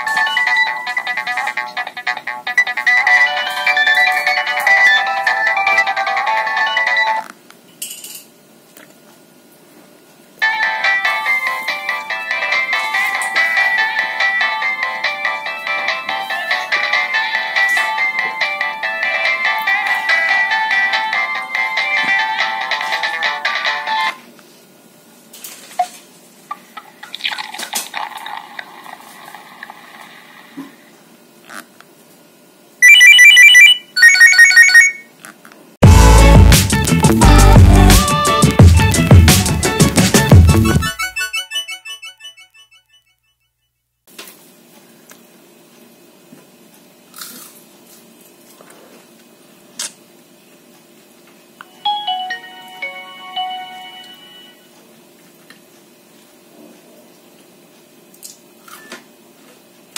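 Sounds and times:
phone clicks and blips: 32.8s - 35.0s
phone ringtone preview: 32.8s - 35.1s, 41.1s - 43.2s, 51.7s - 54.7s.

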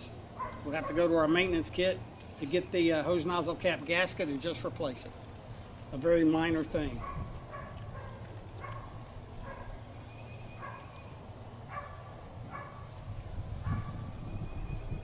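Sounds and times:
low steady background noise: 0.0s - 15.0s.

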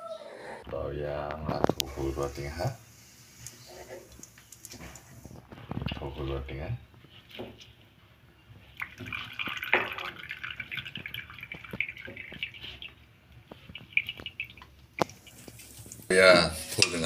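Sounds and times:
hot oil crackling: 1.5s - 7.7s, 8.6s - 16.1s
oil pouring and splashing: 8.7s - 16.1s.

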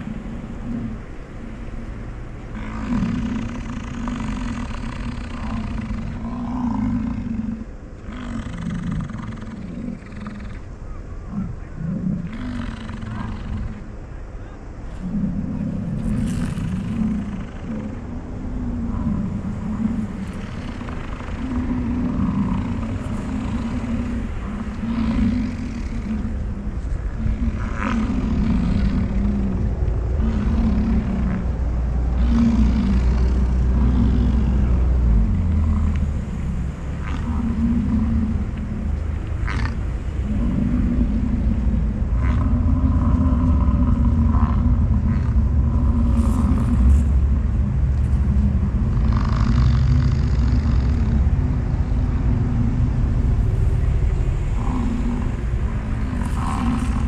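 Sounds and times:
low rumble: 0.0s - 57.0s
bison bellowing: 15.0s - 57.0s.

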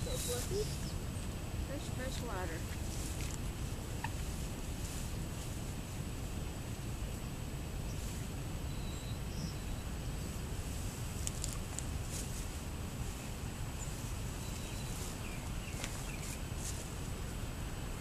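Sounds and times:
faint bird chirps: 0.0s - 1.0s, 7.8s - 10.0s, 13.8s - 16.4s
low outdoor rumble: 0.0s - 18.0s.

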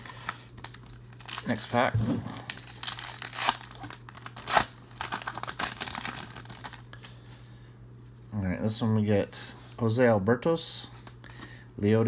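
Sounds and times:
wrapper being torn open: 0.0s - 1.8s, 2.4s - 6.9s
wrapper crinkling: 0.0s - 6.9s.

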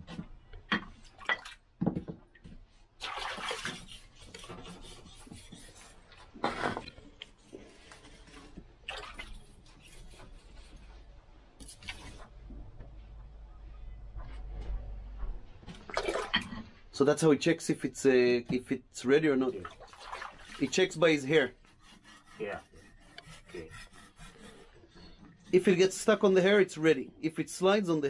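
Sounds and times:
water splashing: 3.0s - 4.6s, 8.8s - 9.5s, 15.9s - 16.7s, 19.5s - 20.9s
knife scraping on whetstone: 3.7s - 6.0s, 21.6s - 25.2s.

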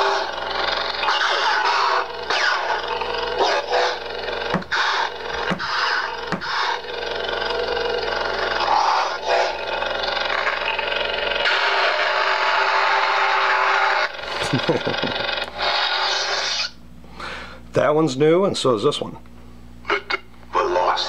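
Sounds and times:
lightsaber hum with swooshes: 0.0s - 16.8s
sharp lightsaber hits: 1.1s - 6.8s.

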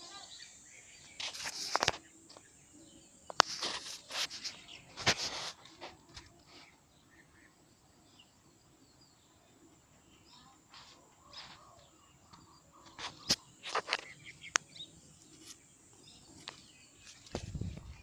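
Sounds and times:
rustling: 1.1s - 2.5s, 3.3s - 6.8s.

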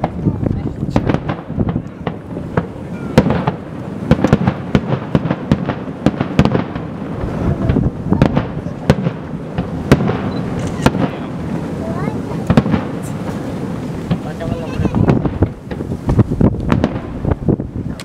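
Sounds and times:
firework shells bursting: 0.8s - 11.7s, 15.0s - 18.0s.

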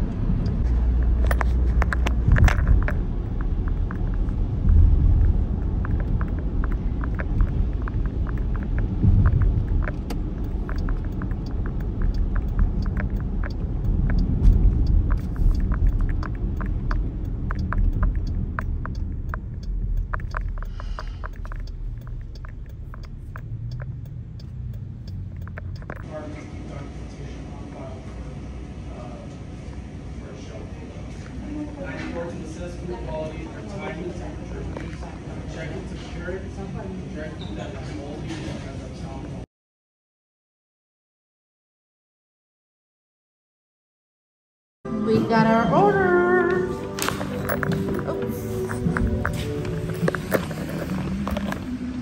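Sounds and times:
car road noise rumble: 0.0s - 27.6s, 45.1s - 52.0s
raindrops tapping on windshield: 0.4s - 26.0s.

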